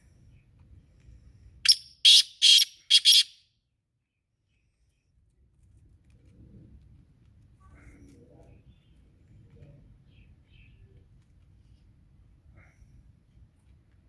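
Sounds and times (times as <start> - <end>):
francolin calling: 1.7 - 3.4.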